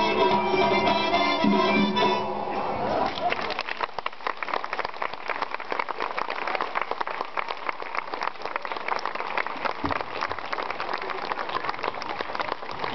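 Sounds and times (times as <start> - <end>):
audience applause: 2.9 - 12.9.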